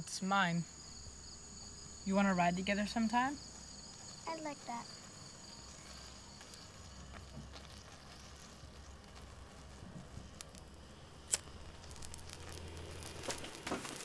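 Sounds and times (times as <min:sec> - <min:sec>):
steady low hum: 0:00.0 - 0:04.3, 0:05.0 - 0:14.0.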